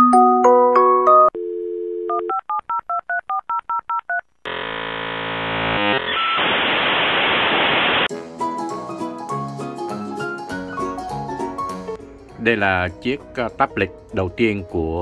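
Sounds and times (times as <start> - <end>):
dial tone: 1.2 - 2.6
harsh buzz: 4.5 - 8.1
static hiss over phone line: 5.7 - 8.1.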